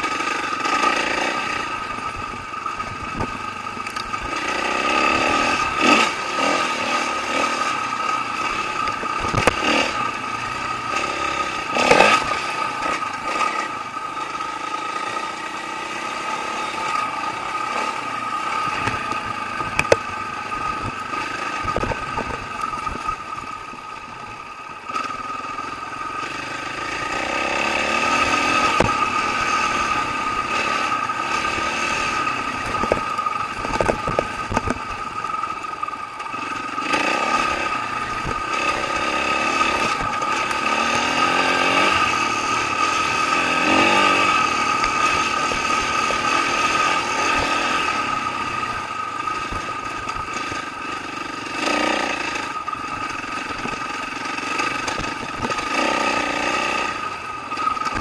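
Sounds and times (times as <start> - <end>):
dirt bike engine: 0.0 - 58.0
bike knocks and rattles: 32.7 - 34.9.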